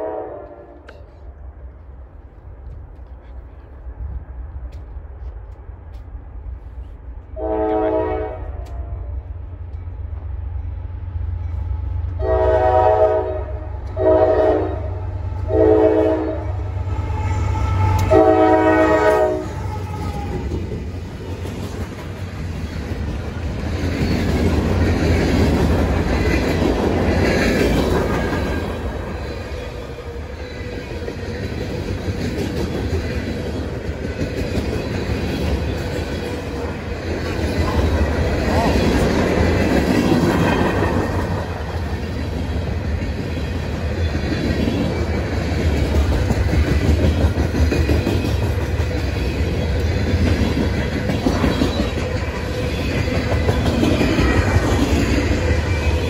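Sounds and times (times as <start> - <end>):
train air horn blasts: 0.0 - 1.1, 7.4 - 9.2, 12.2 - 20.4
diesel locomotives passing: 0.0 - 56.0.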